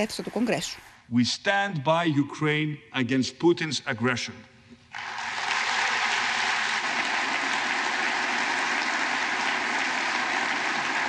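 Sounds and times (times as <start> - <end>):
audience clapping: 4.9 - 11.0.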